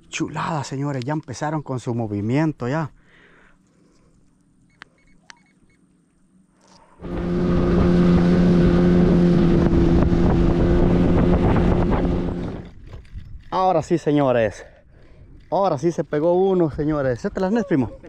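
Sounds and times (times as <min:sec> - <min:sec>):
boat motor humming: 0:03.1 - 0:12.9.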